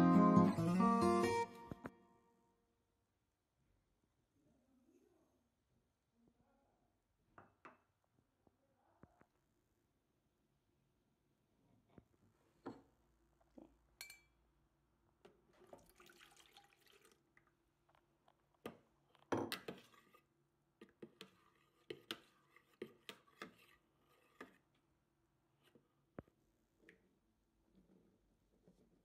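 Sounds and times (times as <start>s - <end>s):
milk pouring into a tub: 15.3s - 18.5s
fork stirring and tapping tub: 18.6s - 24.8s.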